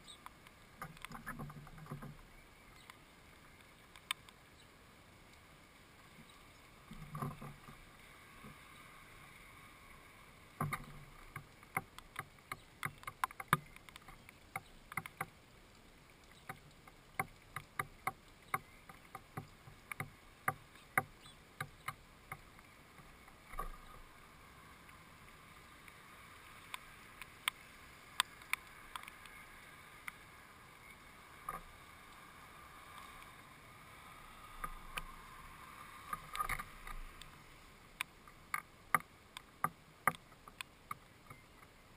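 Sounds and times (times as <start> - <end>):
birds tapping on wooden feeder: 10.6 - 15.3.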